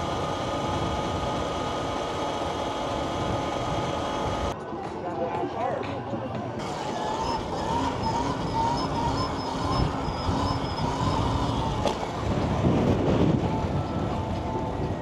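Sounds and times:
electric motor whine: 0.0s - 4.6s, 6.6s - 12.4s
wind rushing over microphone: 7.0s - 15.0s.

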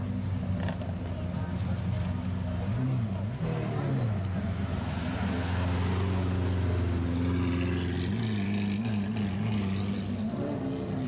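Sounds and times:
car engine revving: 2.5s - 11.0s.

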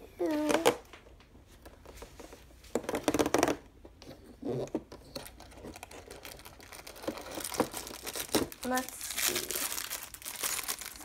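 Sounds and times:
cardboard tearing: 5.2s - 11.0s.

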